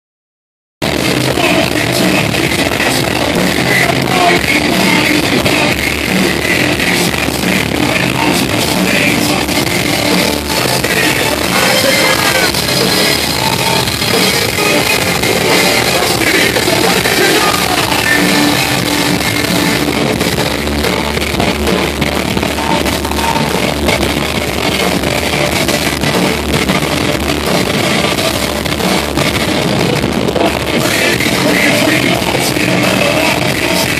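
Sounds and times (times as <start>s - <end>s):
drum kit: 0.8s - 33.9s
electric guitar: 0.8s - 33.9s
person singing: 1.0s - 20.3s, 30.3s - 33.9s.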